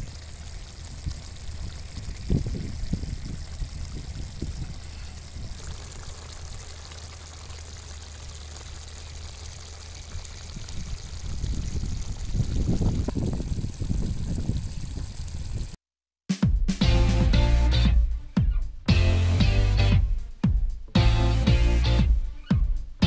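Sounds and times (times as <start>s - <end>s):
wind on microphone: 0.0s - 6.6s, 10.1s - 15.8s.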